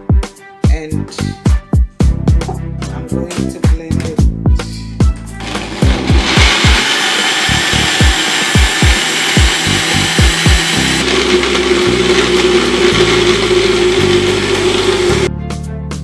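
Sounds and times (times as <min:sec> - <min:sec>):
background music with steady beat: 0:00.0 - 0:16.0
blender grinding: 0:05.4 - 0:15.3.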